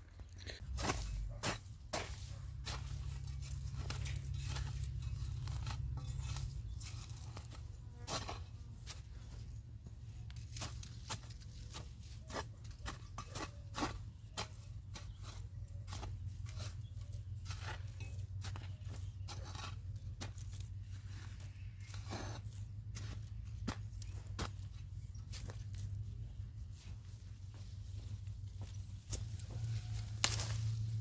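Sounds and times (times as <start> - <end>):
stems and roots crunching and snapping: 29.0 - 31.0.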